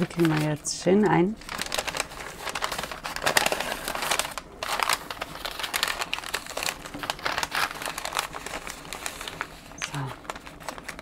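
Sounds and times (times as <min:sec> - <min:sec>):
paper crinkling and rustling: 0:00.0 - 0:11.0.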